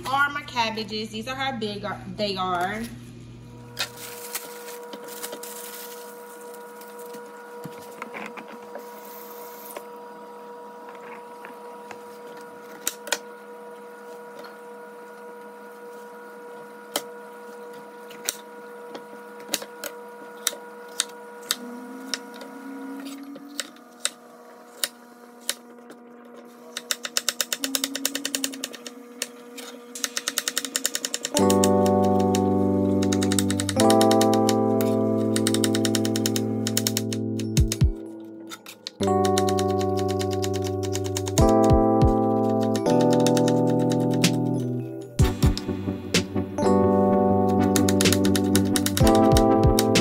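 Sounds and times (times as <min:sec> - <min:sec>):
steady hum: 0:00.0 - 0:50.0.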